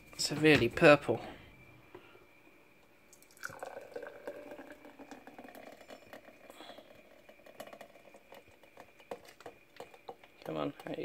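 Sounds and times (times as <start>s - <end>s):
smoothie pouring into a glass: 3.1s - 10.2s.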